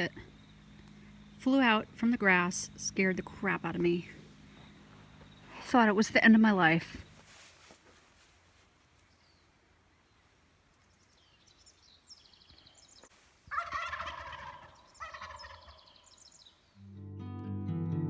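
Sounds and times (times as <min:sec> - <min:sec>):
wild turkeys gobbling: 0:13.5 - 0:16.2.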